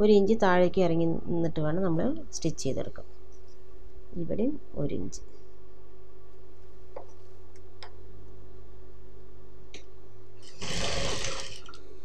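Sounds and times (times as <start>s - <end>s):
sewing machine motor humming: 10.4s - 11.8s
sewing machine stitching: 10.4s - 11.8s.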